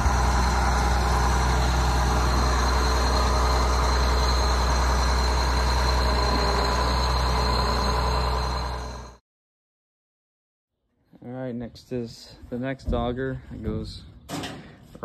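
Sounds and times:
diesel engine running steadily: 0:00.0 - 0:09.2.

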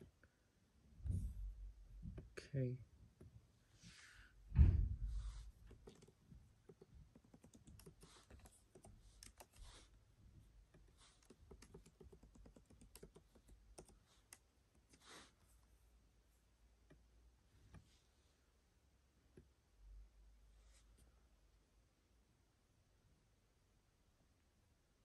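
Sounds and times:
low thump: 0:01.0 - 0:02.2, 0:04.5 - 0:05.5.

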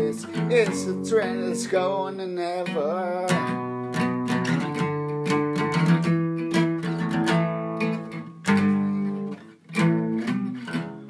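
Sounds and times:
acoustic guitar strumming chords: 0:00.0 - 0:11.0.

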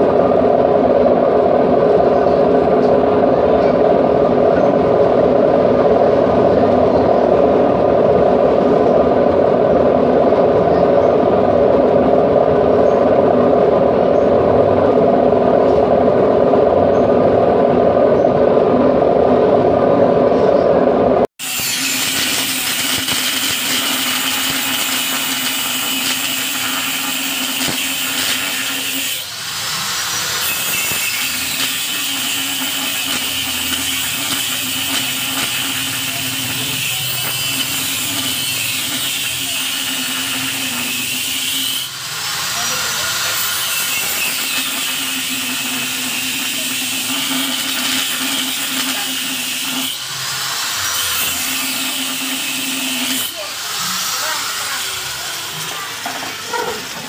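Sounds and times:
washing machine drone: 0:00.0 - 0:57.0
electric power tool running: 0:21.4 - 0:57.0.

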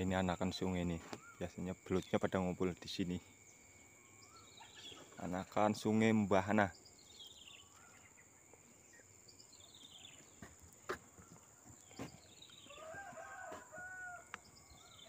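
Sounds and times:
descending bird calls: 0:00.0 - 0:15.0
rooster crowing: 0:12.6 - 0:15.0.

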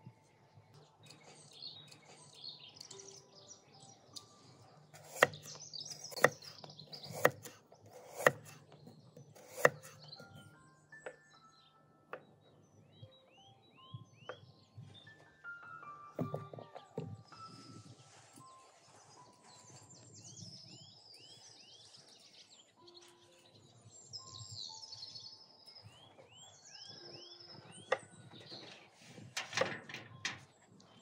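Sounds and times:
small birds chirping: 0:00.0 - 0:29.4
knife chopping carrot on wooden board: 0:05.0 - 0:10.5, 0:16.2 - 0:17.2.

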